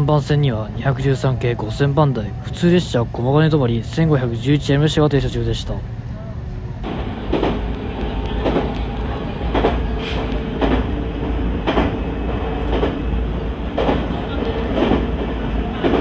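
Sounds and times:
train rumble: 0.0 - 16.0
train wheels clacking over joints: 7.3 - 13.0, 13.7 - 16.0.

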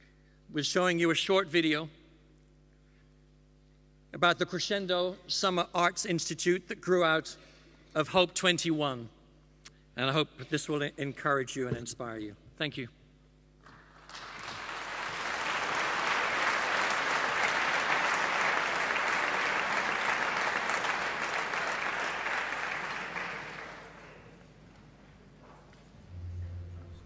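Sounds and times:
audience applauding: 13.6 - 24.9.

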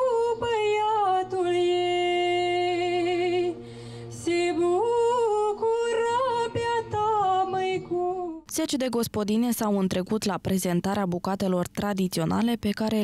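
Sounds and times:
woman singing into microphone: 0.0 - 8.6.

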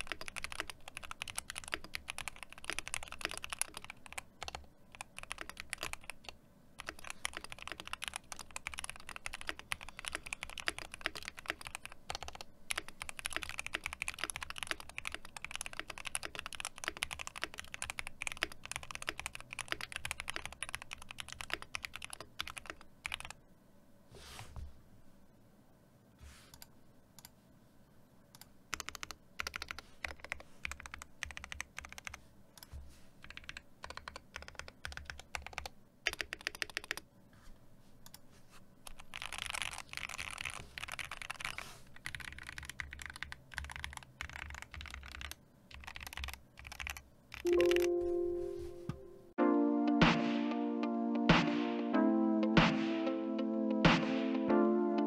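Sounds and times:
mechanical keyboard typing: 0.0 - 23.4, 28.3 - 37.0, 38.8 - 48.0.

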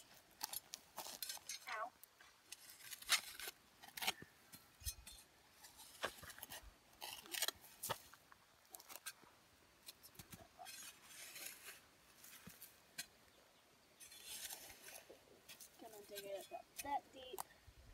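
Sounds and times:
shovel blade scraping stony dirt: 0.4 - 1.6, 2.2 - 8.1, 9.8 - 13.1, 14.0 - 17.0.

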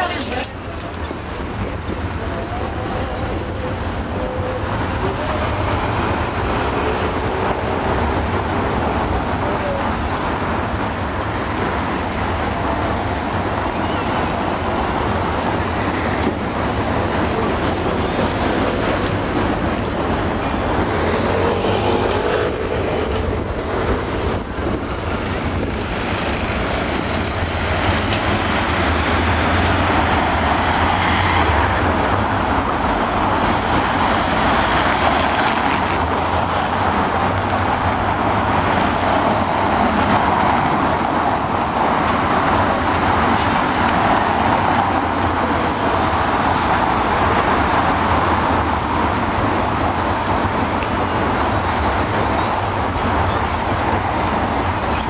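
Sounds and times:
road traffic driving past: 0.0 - 55.0.

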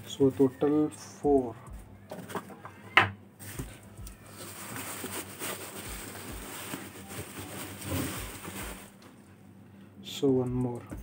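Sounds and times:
bubble wrap rustling and crinkling: 3.4 - 9.1.

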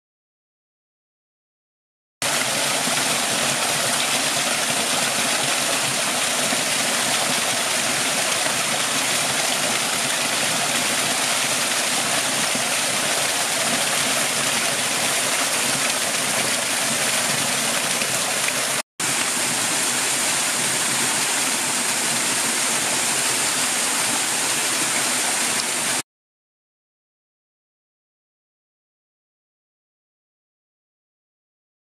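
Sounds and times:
water rushing down cascade: 2.2 - 26.0.

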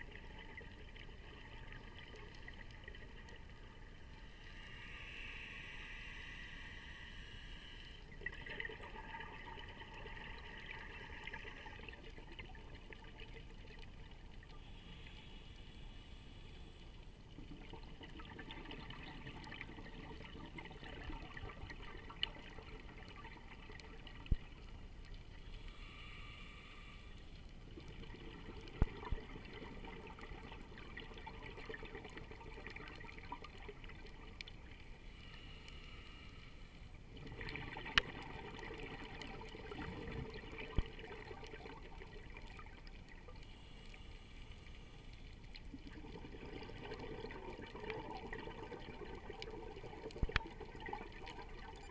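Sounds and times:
diver's exhaled bubbles gurgling: 8.2 - 13.8, 17.4 - 24.7, 27.8 - 34.4, 37.1 - 43.2, 45.7 - 51.9.

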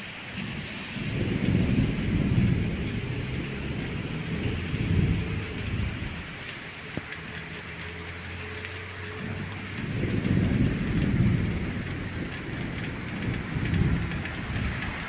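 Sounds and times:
distant thunder rumble: 0.0 - 15.0
rain hissing: 0.0 - 15.0.

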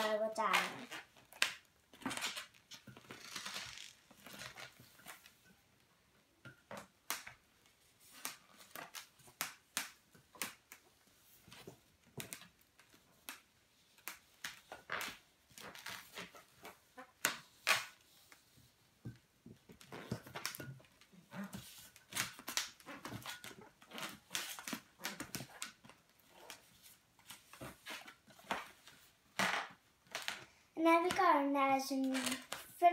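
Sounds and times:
balloons squeaking as twisted: 0.0 - 5.2, 14.6 - 18.0, 19.8 - 28.7, 32.0 - 32.9.

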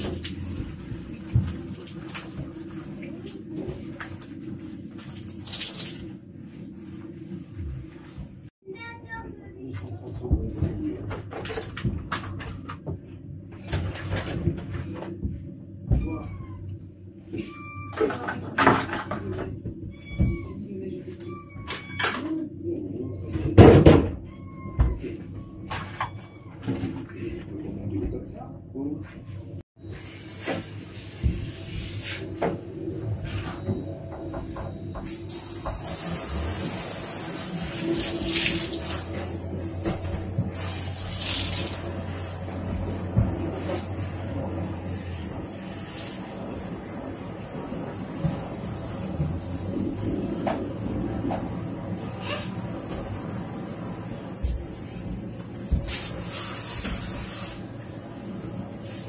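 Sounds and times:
shower head spraying water: 35.2 - 49.7, 51.4 - 59.0
shower head spraying into bathtub: 55.6 - 57.7.

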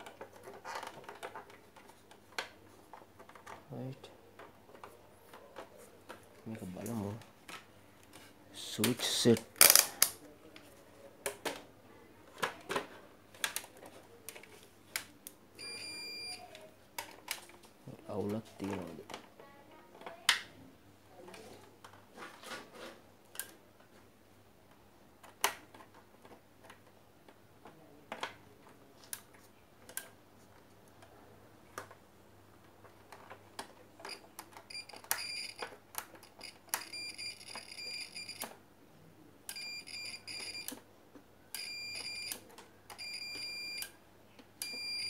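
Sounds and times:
multimeter continuity beeps: 15.6 - 16.5, 34.1 - 35.6, 36.4 - 38.4, 39.5 - 40.7, 41.6 - 42.4, 43.0 - 43.9, 44.6 - 45.0.

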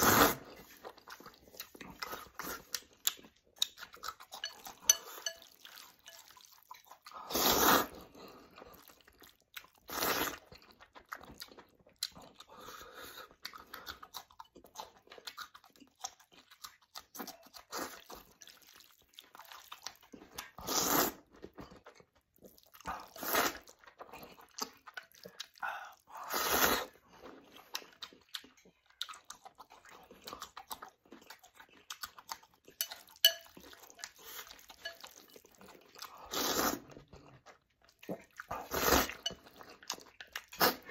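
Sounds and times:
slurping noodles: 0.0 - 2.8, 7.0 - 9.0, 9.8 - 10.7, 19.5 - 21.6, 22.6 - 24.8, 25.4 - 27.8, 36.0 - 37.4, 38.1 - 39.8, 40.4 - 40.9
chewing and crunching: 0.2 - 40.9.

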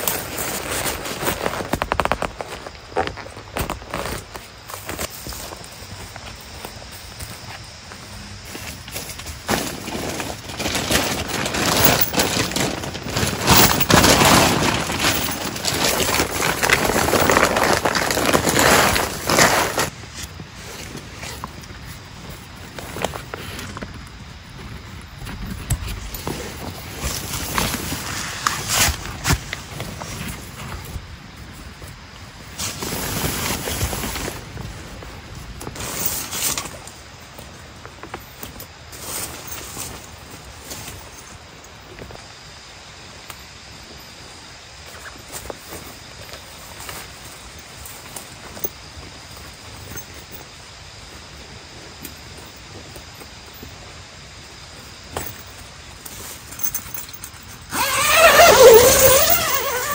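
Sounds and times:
plastic tarp crinkling rustle: 0.0 - 6.8, 8.4 - 23.9, 25.8 - 31.0, 32.4 - 42.0, 55.0 - 59.9
tarp dragged over dry leaves: 0.0 - 31.6, 32.4 - 41.9, 54.7 - 59.9.

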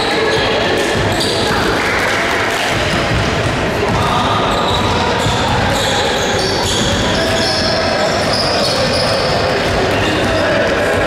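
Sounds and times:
basketballs bouncing on court: 0.0 - 11.0.

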